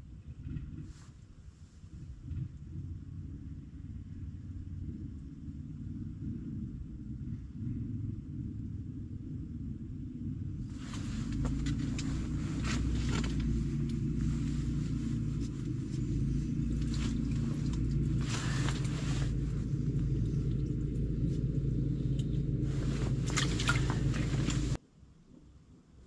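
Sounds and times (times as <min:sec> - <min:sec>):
low engine drone: 0:02.0 - 0:24.8
clothing and gear rustling: 0:10.7 - 0:19.8, 0:22.6 - 0:24.8.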